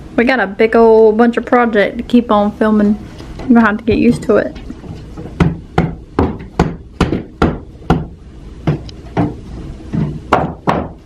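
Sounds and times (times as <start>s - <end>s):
hammer striking nails into wood: 5.4s - 9.4s, 10.0s - 11.0s.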